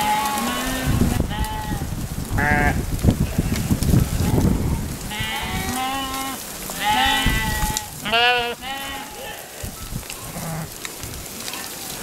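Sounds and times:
hooves pattering on dirt: 0.0 - 12.0
sheep bleating: 4.3 - 9.7.

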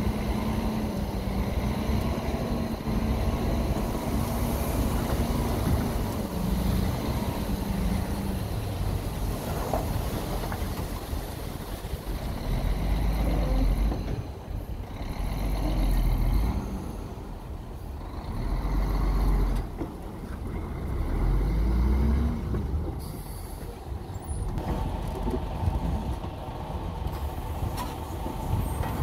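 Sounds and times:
diesel truck engine revving: 0.0 - 10.3, 12.0 - 19.8, 20.5 - 23.3.

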